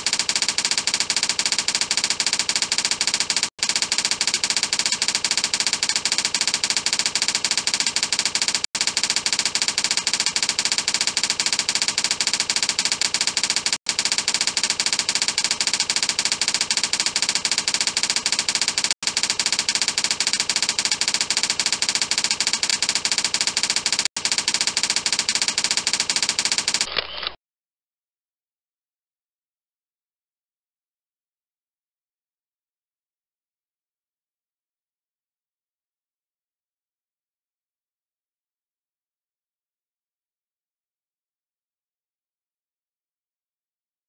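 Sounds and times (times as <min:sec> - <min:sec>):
typewriter key clatter: 0:00.1 - 0:26.9.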